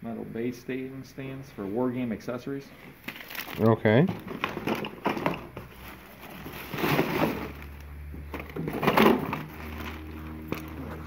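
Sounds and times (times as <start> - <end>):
plastic bag rustling: 2.9 - 11.0.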